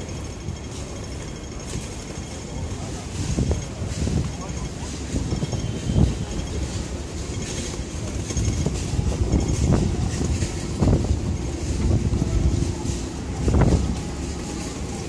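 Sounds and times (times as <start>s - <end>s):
city street traffic rumble: 0.0s - 15.0s
wind on microphone: 8.0s - 14.4s.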